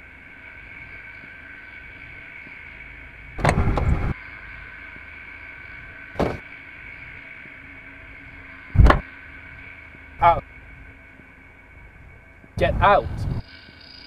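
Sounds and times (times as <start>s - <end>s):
car door rattling clatter: 3.4s - 4.1s, 6.2s - 6.4s
car door knocks: 6.2s - 6.4s.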